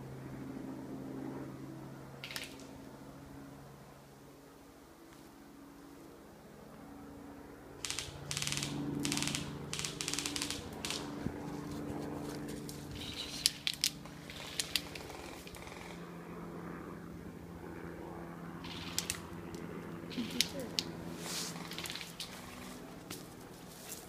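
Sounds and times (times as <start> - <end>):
footsteps through undergrowth: 10.8 - 13.4, 21.1 - 24.0
sharp clicks or snaps: 18.7 - 19.6.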